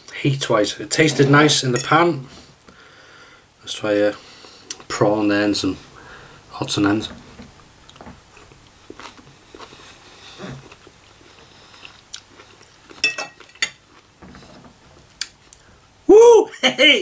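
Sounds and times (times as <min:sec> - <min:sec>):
person chewing food: 0:07.6 - 0:15.7.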